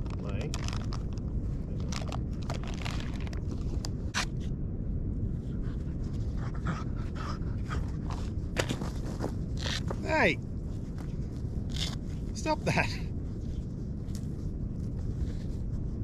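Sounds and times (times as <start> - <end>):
low rumble: 0.0 - 16.0
dog panting: 5.7 - 8.0.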